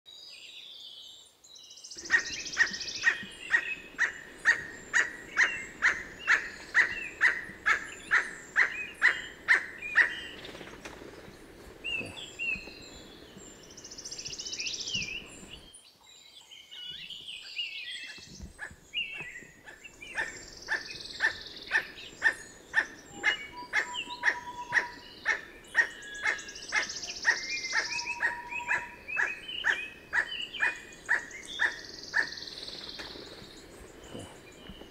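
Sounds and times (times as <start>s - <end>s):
bird barking calls: 2.0s - 10.6s, 17.4s - 34.9s
faint high bird chirps: 19.0s - 33.5s.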